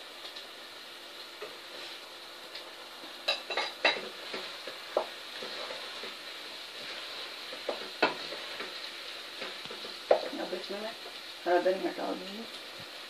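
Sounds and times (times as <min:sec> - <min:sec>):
curry sizzling in a pot: 0:00.0 - 0:13.0
wooden spoon stirring: 0:03.9 - 0:10.4.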